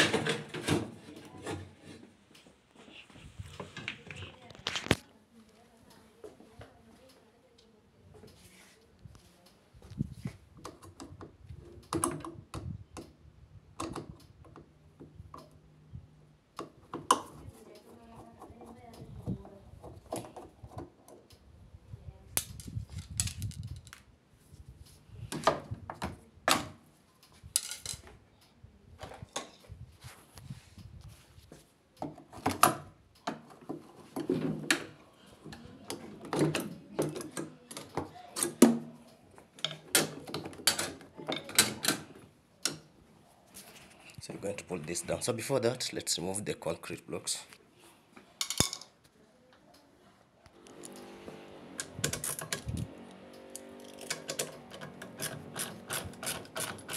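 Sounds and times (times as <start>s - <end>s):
metal and plastic parts clattering: 27.5s - 28.1s, 51.8s - 52.8s, 53.6s - 56.9s.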